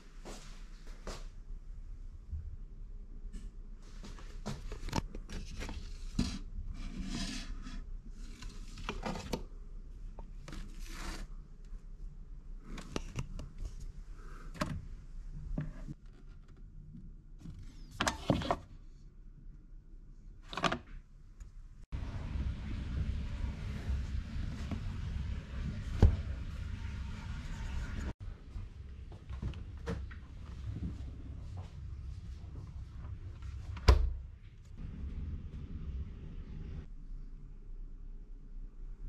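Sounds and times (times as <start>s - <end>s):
steady low rumble: 21.7s - 39.0s.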